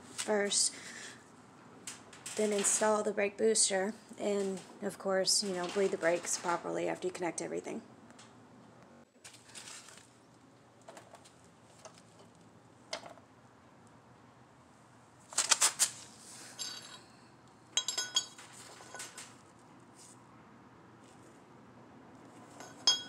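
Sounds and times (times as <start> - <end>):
metallic ring: 22.5 - 23.0.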